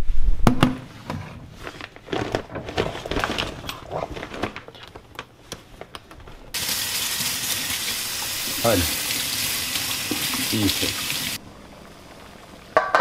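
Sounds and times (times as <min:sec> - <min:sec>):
water running into metal sink: 0:06.6 - 0:11.4.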